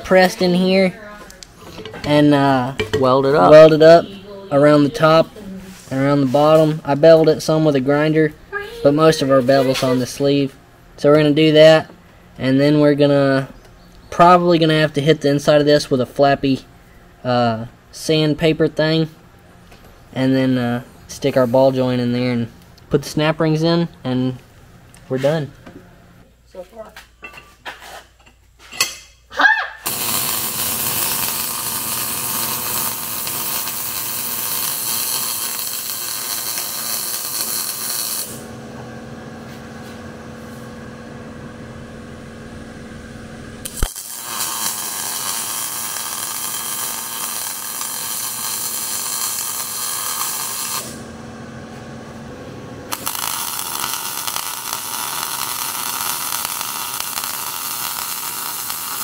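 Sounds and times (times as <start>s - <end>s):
welder crackling buzz: 29.8s - 59.0s
low hum: 37.5s - 47.9s, 50.8s - 58.7s.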